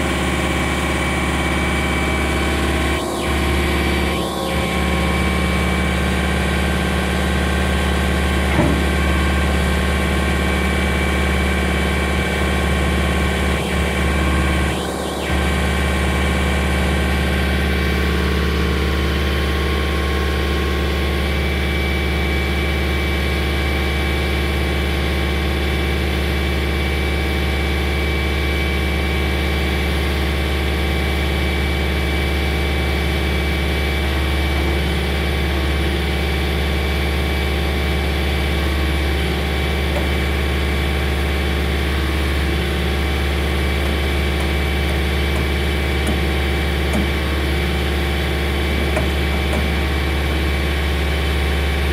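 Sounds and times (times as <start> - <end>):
high whine: 0.0 - 20.3, 38.1 - 51.9
diesel engine running: 0.0 - 51.9.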